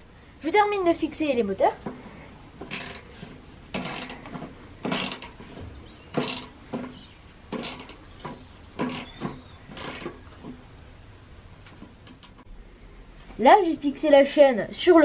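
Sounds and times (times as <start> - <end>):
ratchet wrench clicking: 2.7 - 3.0, 3.8 - 4.2, 4.8 - 5.4, 6.2 - 6.5.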